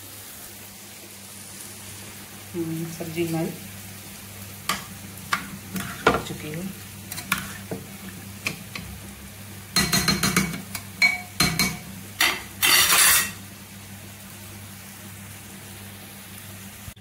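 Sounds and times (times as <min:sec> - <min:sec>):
spoon scraping and clinking in pot: 0:09.8 - 0:13.4.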